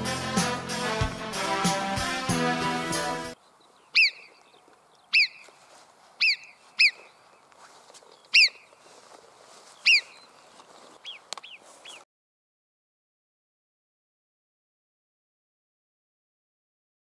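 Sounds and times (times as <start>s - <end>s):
marmot whistles: 4.0s - 4.3s, 5.1s - 5.4s, 6.2s - 7.0s, 8.4s - 8.6s, 9.8s - 10.2s.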